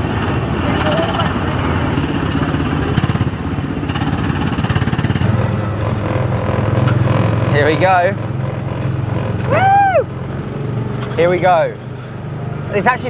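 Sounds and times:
small petrol engine chugging: 0.0 - 13.0.

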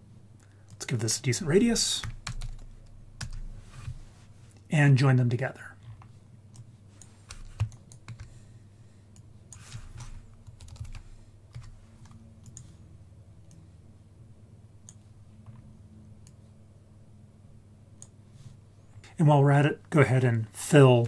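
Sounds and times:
faint low hum: 0.0 - 21.0
keyboard and mouse clicks: 9.2 - 12.7.

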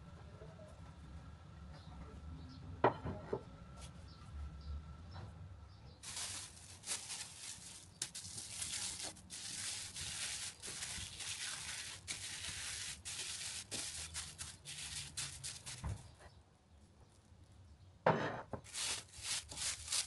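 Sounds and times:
plastic film crinkling: 6.0 - 16.0, 18.6 - 20.0.

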